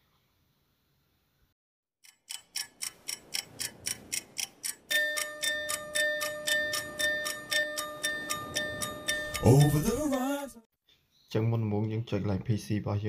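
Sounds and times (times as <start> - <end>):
clock ticking: 2.0 - 10.4
steady held tone: 4.9 - 10.5.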